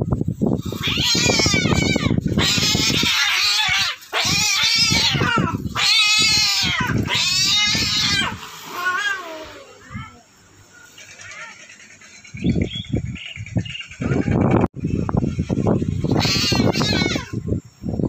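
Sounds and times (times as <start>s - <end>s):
cats yowling: 0.6s - 10.2s, 10.9s - 11.8s, 16.0s - 17.4s.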